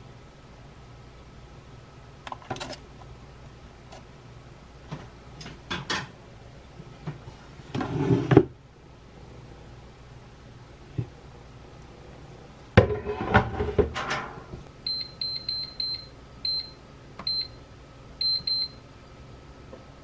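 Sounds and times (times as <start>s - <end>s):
air fryer basket clattering: 5.4s - 6.2s, 12.8s - 14.5s.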